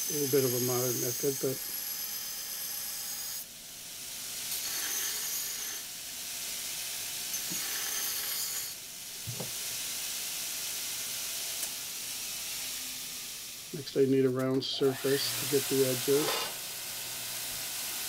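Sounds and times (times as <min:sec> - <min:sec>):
belt sander grinding steel: 0:00.0 - 0:03.4, 0:04.5 - 0:05.9, 0:07.3 - 0:08.8, 0:13.8 - 0:18.0.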